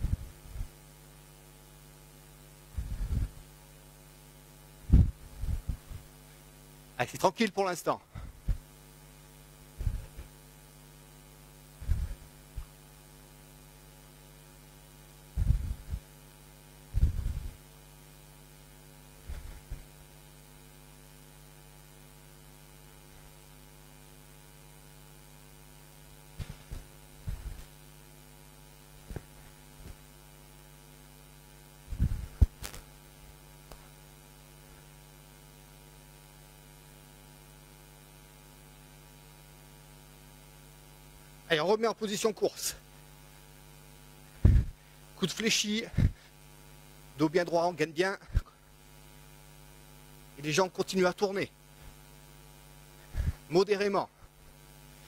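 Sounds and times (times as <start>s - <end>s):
breath puffs on microphone: 0.0s - 0.8s, 2.7s - 3.5s, 4.8s - 6.5s, 9.8s - 10.4s, 11.8s - 12.8s, 15.3s - 16.1s, 16.9s - 17.6s, 19.2s - 20.0s, 26.4s - 27.8s, 31.9s - 32.8s, 44.3s - 45.1s, 45.9s - 46.4s, 53.0s - 53.5s
mains hum: 0.0s - 55.0s.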